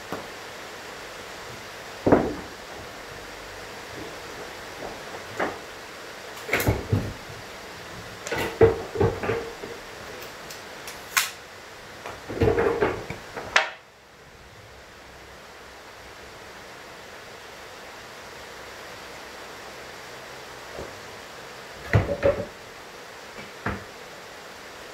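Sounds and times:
steady background hiss: 0.0s - 24.9s
plywood pieces knocking: 2.0s - 3.0s.

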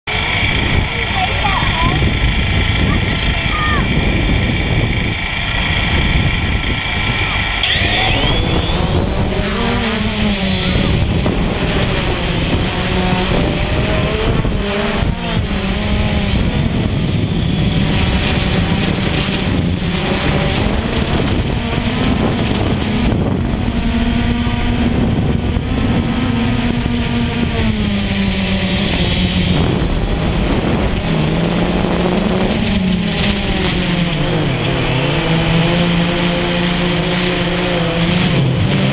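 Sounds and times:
drone propellers whining: 0.0s - 38.9s
rushing noise: 0.1s - 38.9s.

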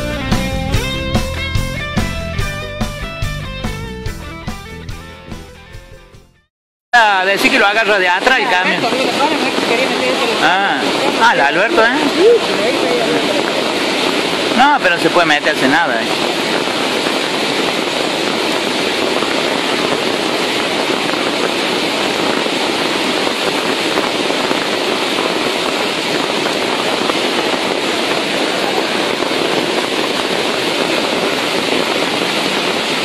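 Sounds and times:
floodwater rushing: 7.0s - 33.0s.

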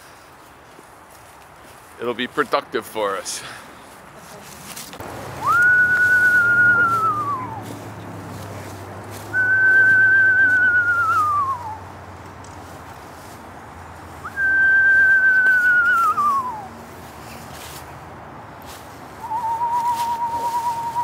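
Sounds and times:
person whistling owl call: 5.4s - 7.6s, 9.3s - 11.8s, 14.2s - 16.7s, 19.2s - 21.0s.

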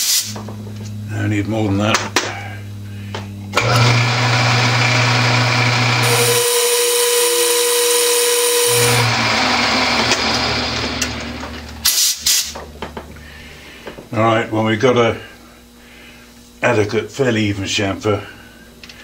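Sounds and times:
metal lathe running: 3.6s - 11.9s
harsh metal cutting noise: 3.6s - 12.6s.

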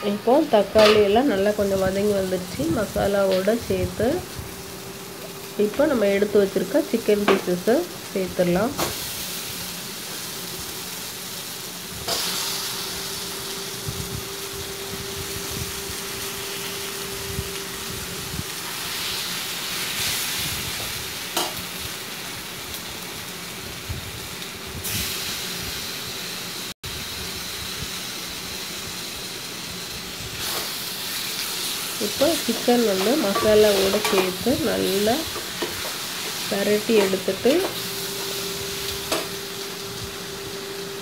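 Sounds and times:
chicken sizzling in a pan: 0.0s - 41.0s
ladle scraping and knocking pan: 32.5s - 34.4s.

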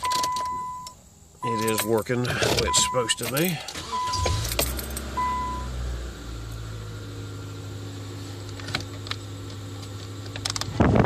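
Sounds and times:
dashboard chime beep: 0.0s - 2.0s, 2.7s - 3.2s, 5.2s - 5.7s
heater blower and car hum: 0.0s - 11.0s.

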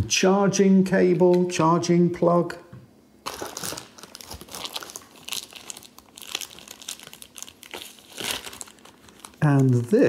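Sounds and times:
plastic packaging crinkling: 3.2s - 10.0s.

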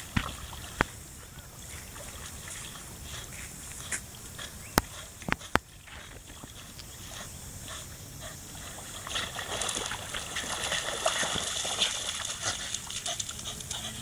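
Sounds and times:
dog splashing through water: 8.5s - 14.0s.

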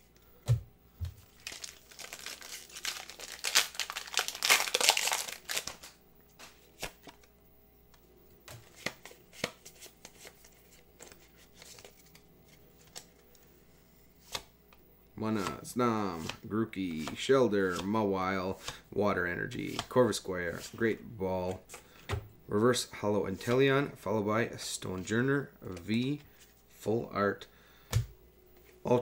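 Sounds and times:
foil wrapper crinkling and tearing: 1.2s - 6.0s.

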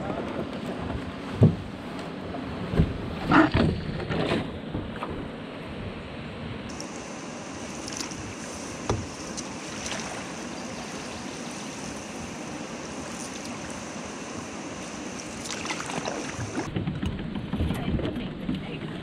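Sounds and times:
wind: 0.0s - 19.0s
knocks on canoe: 0.9s - 1.7s, 8.9s - 9.2s
water washing: 6.7s - 16.7s.

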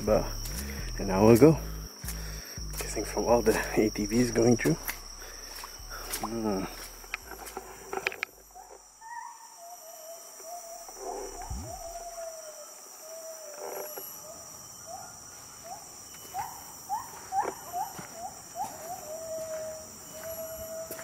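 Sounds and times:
high-pitched insect drone: 0.0s - 21.0s
bird whistling: 11.4s - 12.2s.

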